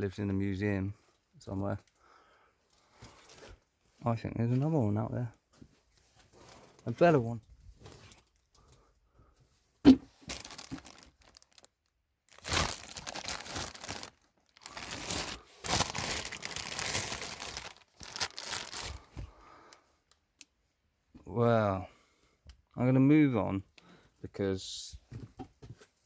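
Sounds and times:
paper crinkling and rustling: 10.2s - 11.7s, 12.3s - 19.2s.

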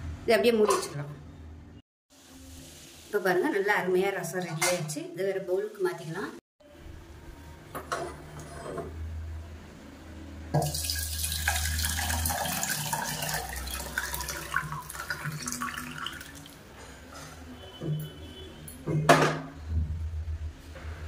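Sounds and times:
soup pouring into metal bowl: 10.6s - 16.6s.

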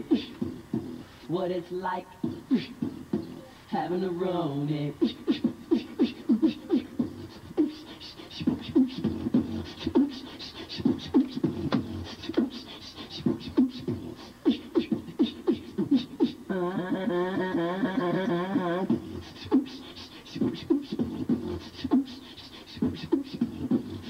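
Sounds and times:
man beatboxing: 0.0s - 24.0s
person singing warbling line: 15.5s - 19.7s.

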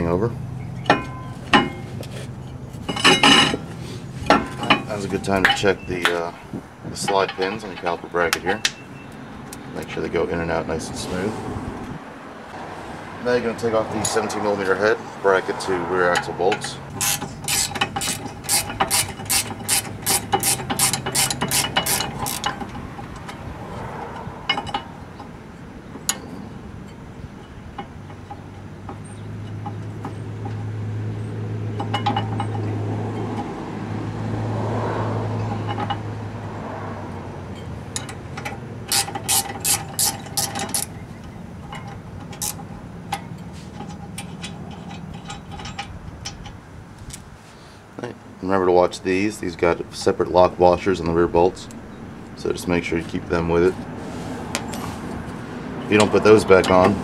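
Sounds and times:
low steady hum: 0.0s - 10.0s
ratcheting wrench clicking: 16.9s - 23.4s, 37.9s - 41.0s, 41.8s - 43.2s.

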